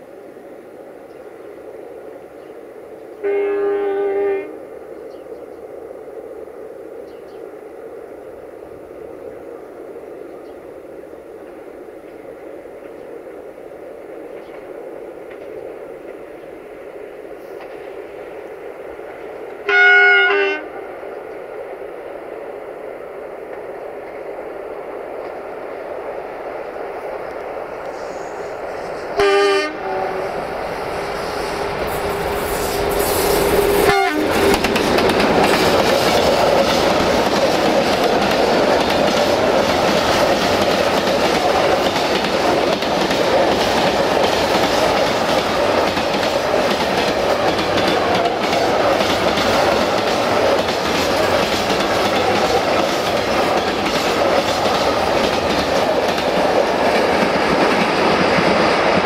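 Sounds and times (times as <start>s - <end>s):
locomotive horn blast: 3.2s - 4.6s, 19.7s - 20.7s, 29.2s - 30.4s, 33.8s - 34.4s
train wheels rolling: 10.4s - 59.0s
wheels clicking over rail joints: 31.6s - 59.0s.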